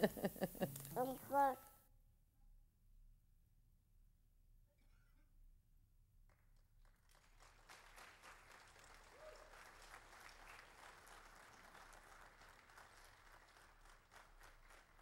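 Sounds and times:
faint applause: 0:06.9 - 0:15.0.

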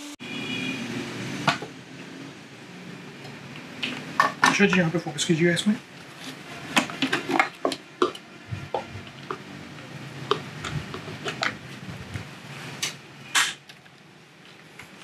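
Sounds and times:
plastic bowl scrape: 0:10.3 - 0:11.9.

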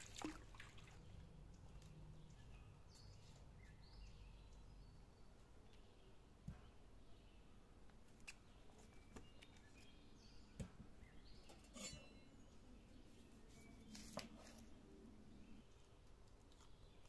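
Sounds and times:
faint bird chirps: 0:08.4 - 0:15.9.

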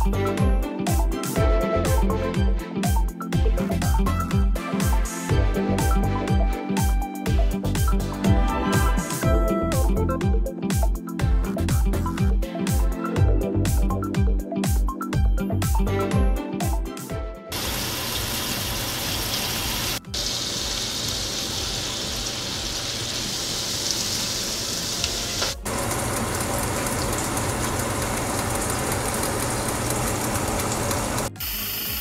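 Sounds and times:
music: 0:00.0 - 0:18.1, 0:19.4 - 0:20.8, 0:25.0 - 0:25.7, 0:31.1 - 0:32.0
meat and onion frying in oil: 0:17.5 - 0:32.0.

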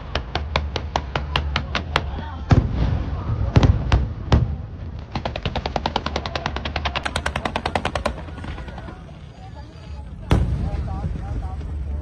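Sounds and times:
rapid firework pops: 0:00.0 - 0:08.6
fireworks bangs: 0:02.4 - 0:09.3, 0:10.1 - 0:12.0.

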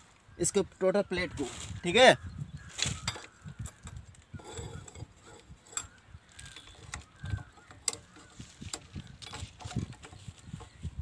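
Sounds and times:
spanner clinking on metal: 0:03.0 - 0:10.2.

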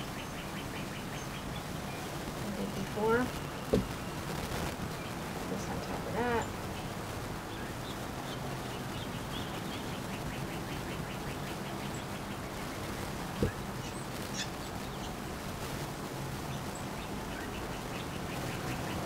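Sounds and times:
bird chirping rapidly: 0:06.1 - 0:15.2.

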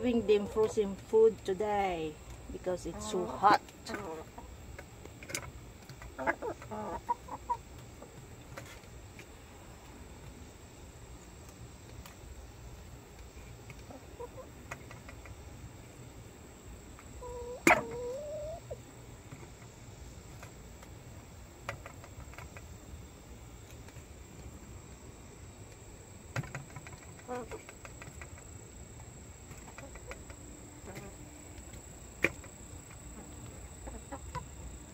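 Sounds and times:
hens clucking: 0:00.0 - 0:01.0, 0:02.6 - 0:08.8, 0:13.7 - 0:15.4, 0:17.0 - 0:19.0, 0:26.7 - 0:28.5, 0:29.5 - 0:34.8.

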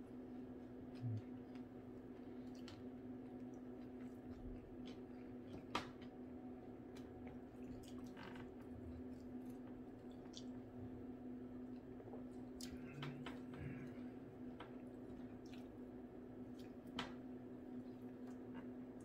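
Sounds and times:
person chewing: 0:11.6 - 0:15.8, 0:16.4 - 0:16.9.

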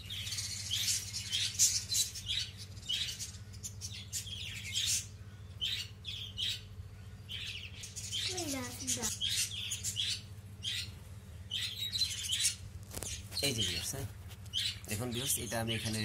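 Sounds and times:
budgerigars chirping and squawking: 0:00.0 - 0:16.0.

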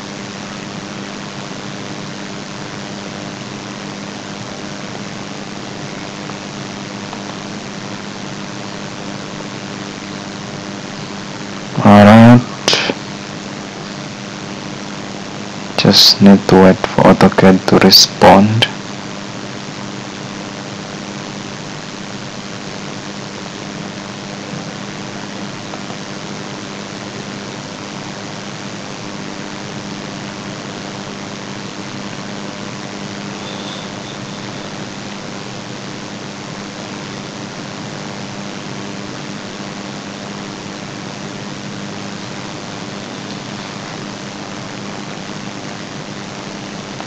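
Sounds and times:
steady hiss: 0:00.0 - 0:47.0.

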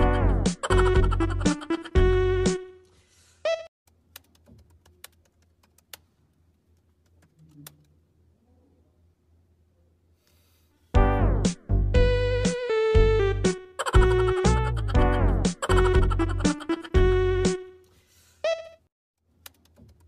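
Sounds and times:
loud music: 0:11.0 - 0:17.6.

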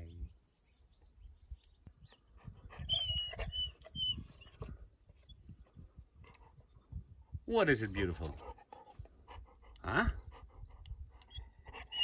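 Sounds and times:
dog squeaking: 0:02.9 - 0:04.7.

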